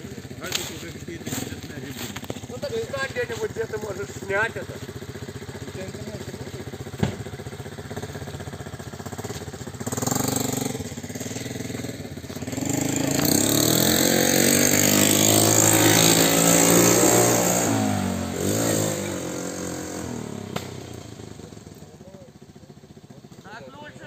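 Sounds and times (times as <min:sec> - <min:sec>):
small engine revving: 0:00.0 - 0:22.4.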